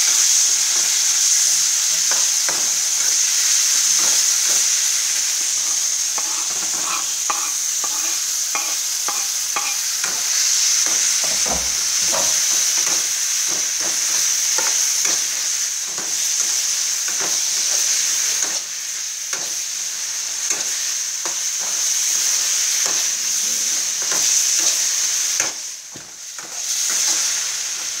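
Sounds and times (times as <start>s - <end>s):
meat sizzling in a wok: 0.0s - 28.0s
metal spatula scraping a pan: 2.1s - 13.1s.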